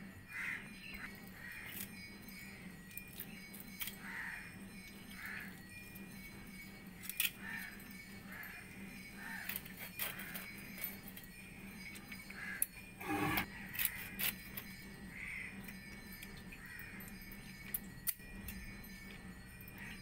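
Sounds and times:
scraping fish on blade: 13.0s - 13.5s.

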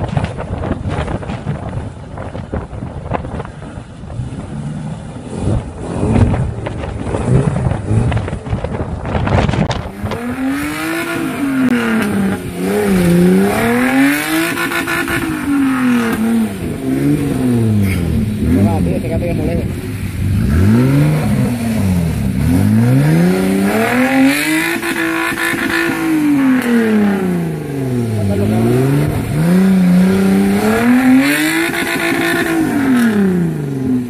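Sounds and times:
wind buffeting microphone: 0.0s - 34.0s
engine revving hard: 9.9s - 34.0s.

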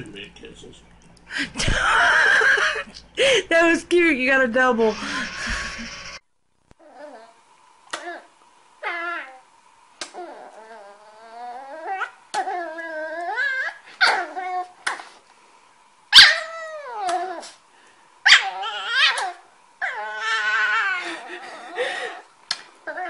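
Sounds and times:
puppy whining and yipping: 10.1s - 14.8s, 16.1s - 17.6s, 18.2s - 22.2s.

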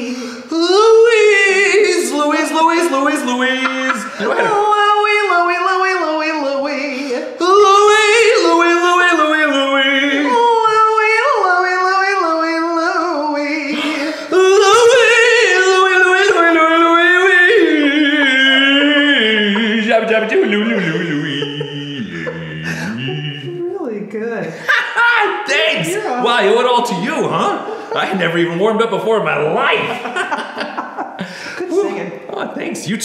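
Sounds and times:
puppet voice singing: 0.0s - 23.8s
woman singing vocal warm-up: 3.6s - 11.4s.

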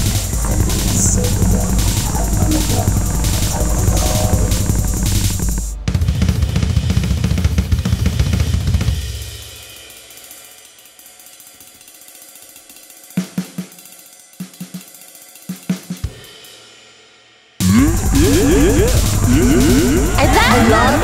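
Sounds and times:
drum kit music: 0.0s - 10.6s, 17.6s - 21.0s.

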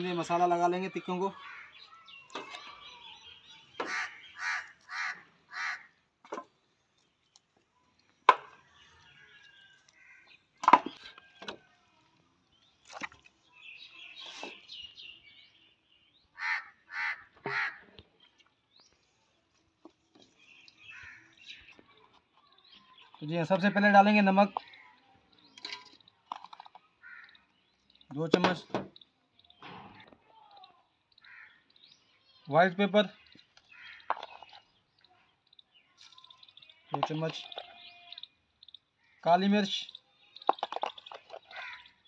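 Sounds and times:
bird calling: 0.9s - 6.0s, 16.3s - 18.0s, 20.5s - 22.2s.

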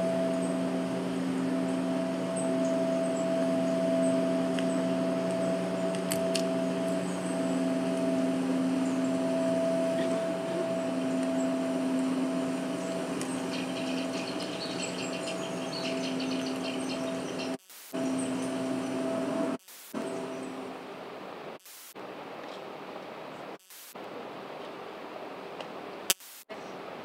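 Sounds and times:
drone of held tones: 0.0s - 20.9s
sharp clicks: 26.1s - 26.5s.

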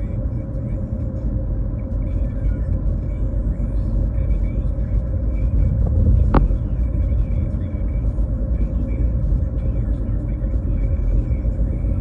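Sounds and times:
car cabin road noise: 0.0s - 12.0s
faint steady hum: 0.0s - 12.0s.

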